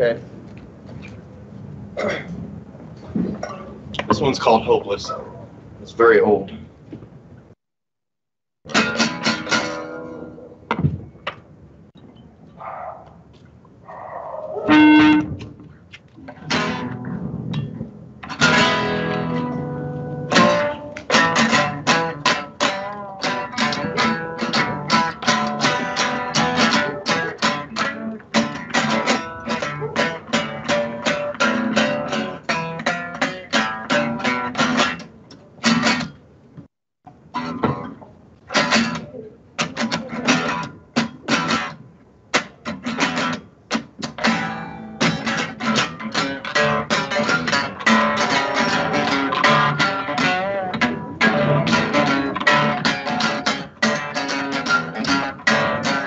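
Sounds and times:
acoustic guitar strumming: 0:08.7 - 0:10.5, 0:14.7 - 0:15.4, 0:16.3 - 0:36.2, 0:37.3 - 0:56.0.

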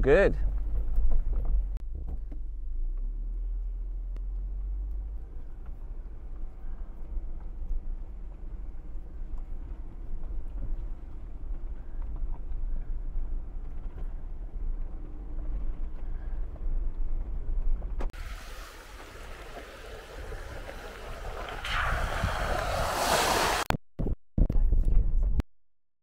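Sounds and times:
vehicle rumbling over rocks: 0:17.1 - 0:23.6
loud rushing hiss: 0:18.2 - 0:23.7.

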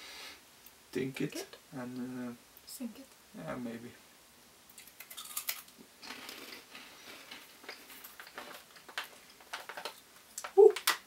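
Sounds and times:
crunching crispy snack: 0:04.8 - 0:06.6.

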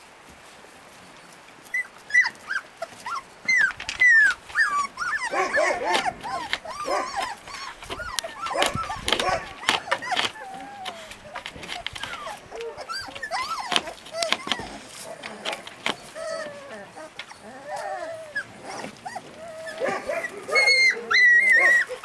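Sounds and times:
puppies whimpering and yelping: 0:01.6 - 0:22.0.

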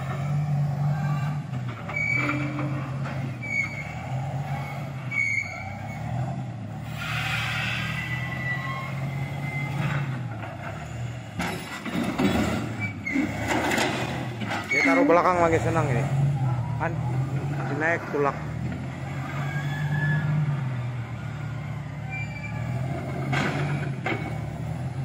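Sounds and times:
wheel loader diesel engine: 0:00.0 - 0:25.0
short high squeaks: 0:01.8 - 0:06.1, 0:06.9 - 0:10.1, 0:12.7 - 0:13.6, 0:14.6 - 0:15.5, 0:22.1 - 0:23.0.

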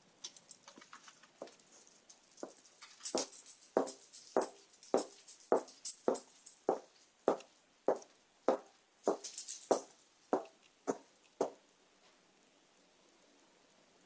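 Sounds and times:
footsteps with metallic jingle: 0:00.3 - 0:11.6.

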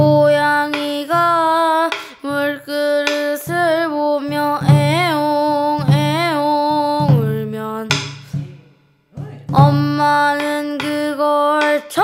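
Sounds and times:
low accompaniment: 0:03.4 - 0:11.1.

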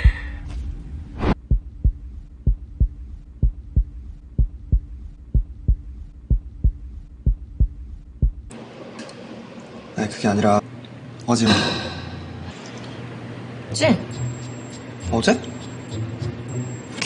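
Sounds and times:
heartbeat thumps: 0:00.0 - 0:08.6
low hum: 0:00.0 - 0:08.6.

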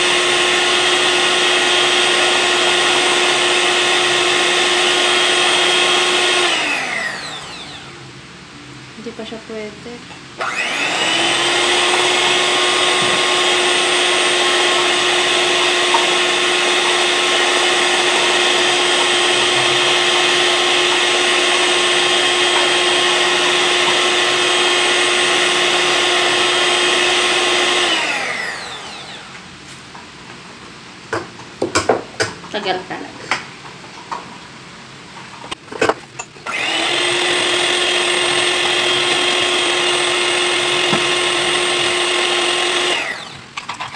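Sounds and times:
electric hand mixer whirring: 0:00.0 - 0:08.0, 0:10.4 - 0:29.4, 0:36.4 - 0:43.6.

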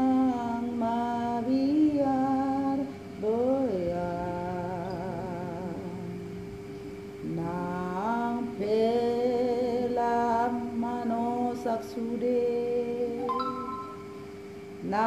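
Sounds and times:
woman singing slow song: 0:00.0 - 0:06.3, 0:07.2 - 0:15.0
low held tone: 0:13.0 - 0:14.6.

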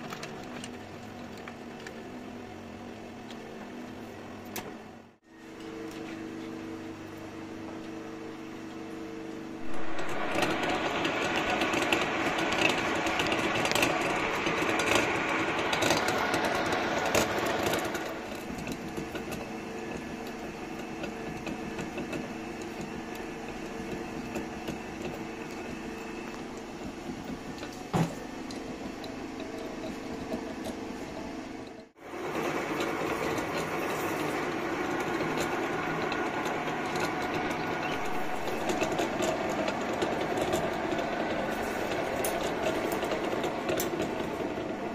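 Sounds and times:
lathe cutter milling metal: 0:09.6 - 0:30.6, 0:32.0 - 0:44.9.

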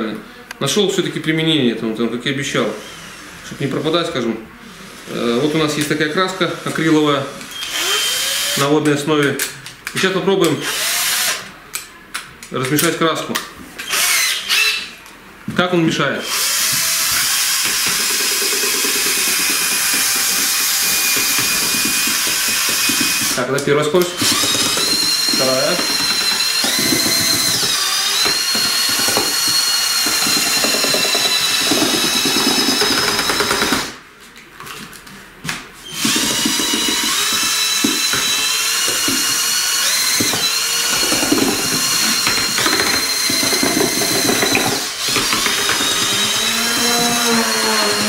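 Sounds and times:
drill motor whine: 0:07.5 - 0:08.6, 0:10.6 - 0:11.4, 0:13.8 - 0:14.9, 0:24.2 - 0:33.9, 0:35.9 - 0:48.0.

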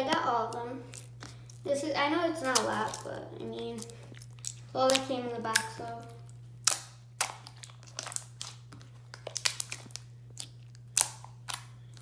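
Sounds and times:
slime squeezed with crunchy pops: 0:06.6 - 0:12.0.

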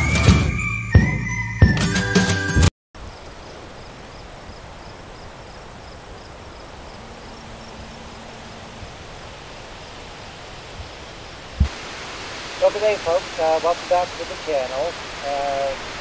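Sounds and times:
high-pitched insect trill: 0:03.0 - 0:10.3
background hiss: 0:03.0 - 0:16.0
insects chirping: 0:03.0 - 0:16.0.

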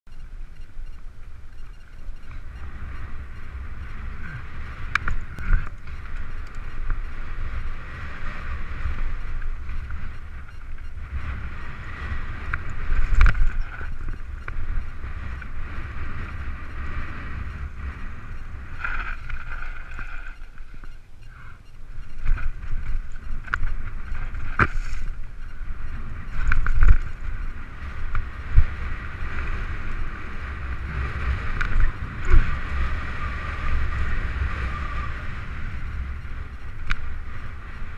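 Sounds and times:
bike tyres on dirt: 0:00.1 - 0:37.9
wind buffeting microphone: 0:00.1 - 0:37.9
bike knocks and rattles: 0:22.0 - 0:29.5.

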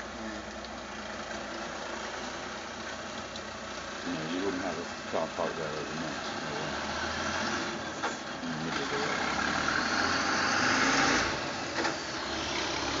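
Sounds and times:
truck engine pulling away: 0:00.0 - 0:13.0.

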